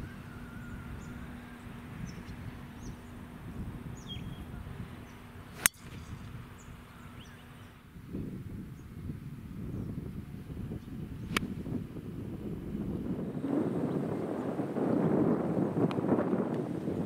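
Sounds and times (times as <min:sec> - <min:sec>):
golf club striking ball: 0:05.5 - 0:06.6, 0:11.3 - 0:11.6.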